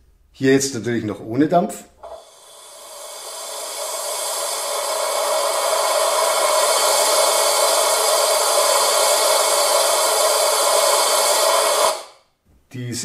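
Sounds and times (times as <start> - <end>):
steam hiss: 2.0 - 12.2.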